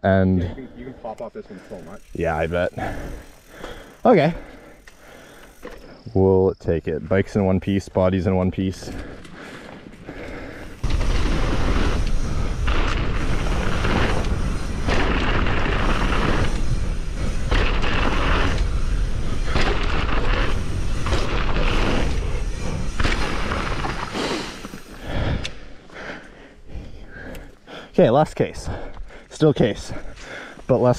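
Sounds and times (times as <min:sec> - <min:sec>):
tyres rolling over gravel: 0:07.2 - 0:25.3.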